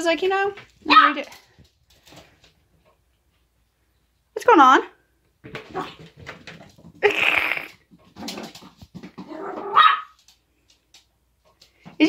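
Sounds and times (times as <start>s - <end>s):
small dogs growling: 7.2s - 9.8s
dog yipping: 9.3s - 10.2s.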